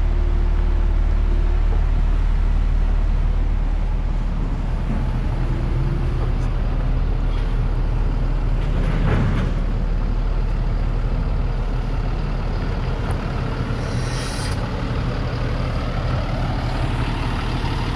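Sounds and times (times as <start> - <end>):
diesel truck engine idling: 0.0 - 17.9
short hiss: 13.8 - 14.7.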